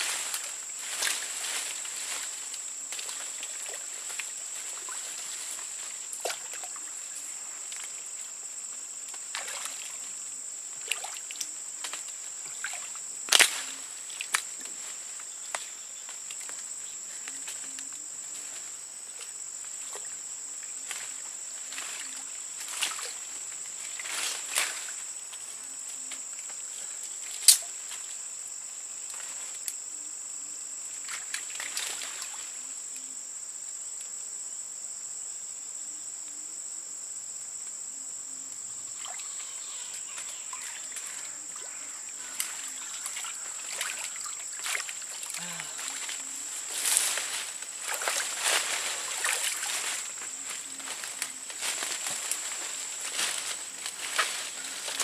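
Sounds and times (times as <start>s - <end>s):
water sloshing and splashing: 9.2s - 10.1s, 40.5s - 55.0s
high-pitched insect drone: 9.4s - 33.4s, 37.9s - 55.0s.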